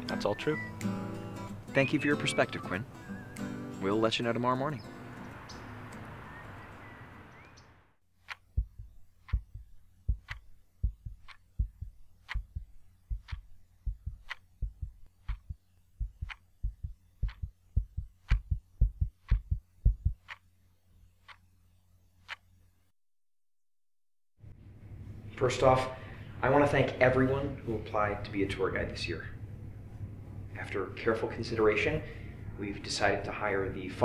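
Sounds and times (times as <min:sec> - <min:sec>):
clock ticking: 0:08.2 - 0:20.5, 0:21.2 - 0:21.4, 0:22.2 - 0:22.4
heartbeat thumping: 0:08.3 - 0:20.4
low hum: 0:08.4 - 0:20.3, 0:24.4 - 0:31.5.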